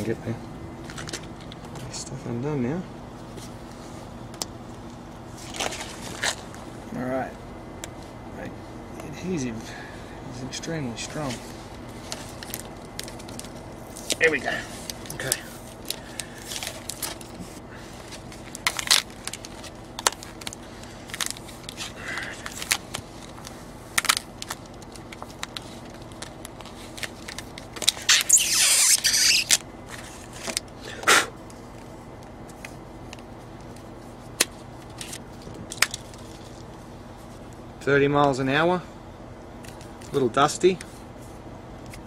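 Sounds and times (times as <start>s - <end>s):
plastic film crinkling: 11.2s - 30.8s, 33.1s - 37.5s.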